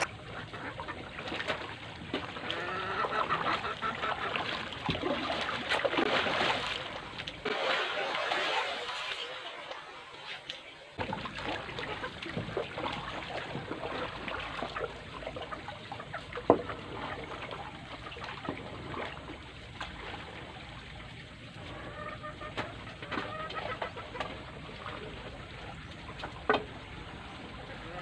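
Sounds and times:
chickens clucking: 0:02.4 - 0:05.6, 0:11.3 - 0:19.2, 0:21.5 - 0:26.6.

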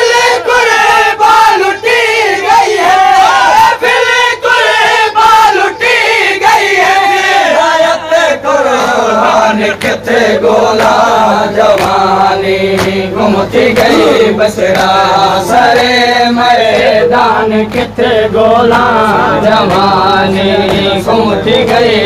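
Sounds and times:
crowd of men chanting: 0:00.0 - 0:22.0
hand slaps: 0:11.7 - 0:12.0, 0:12.8 - 0:13.0.

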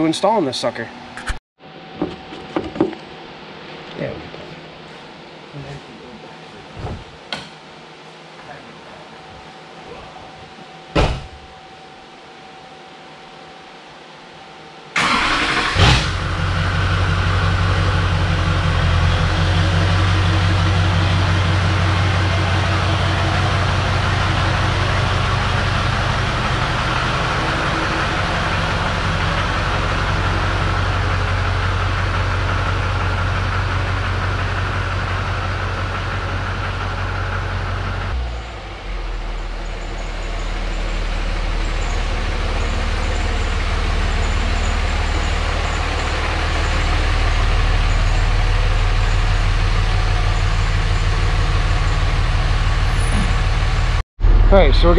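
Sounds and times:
diesel truck engine running: 0:15.0 - 0:54.9
pickup truck engine starting: 0:15.0 - 0:54.9.

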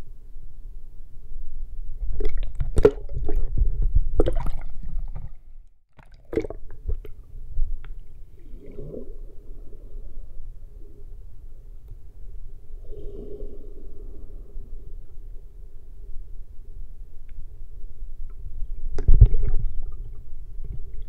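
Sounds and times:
low underwater rumble: 0:01.1 - 0:21.0
water sloshing and gurgling: 0:02.0 - 0:10.8, 0:19.0 - 0:21.0.

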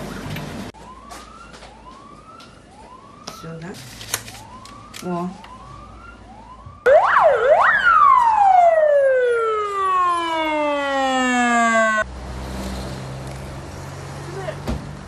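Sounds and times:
police siren wailing: 0:00.7 - 0:12.1.

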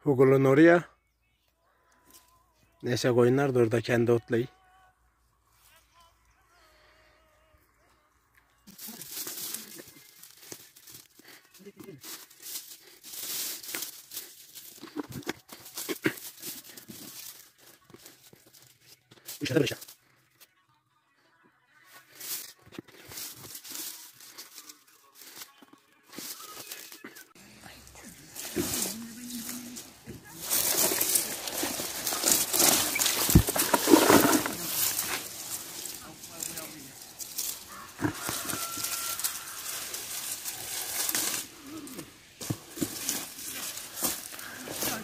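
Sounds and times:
rustling tomato vines and leaves: 0:08.6 - 0:20.0, 0:21.9 - 0:45.0.

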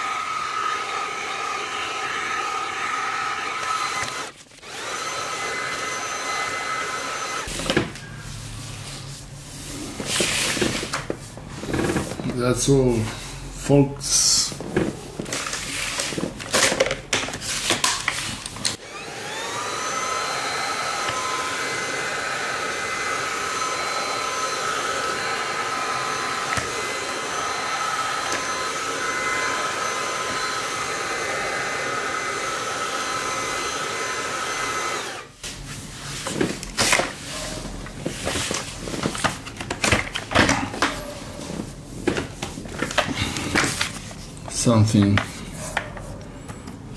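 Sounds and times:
vacuum cleaner motor whine: 0:00.0 - 0:08.7, 0:18.1 - 0:35.6.

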